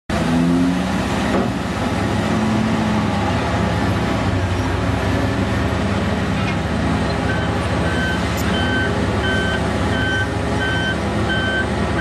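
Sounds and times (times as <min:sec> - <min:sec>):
heavy diesel engines droning: 0:00.1 - 0:12.0.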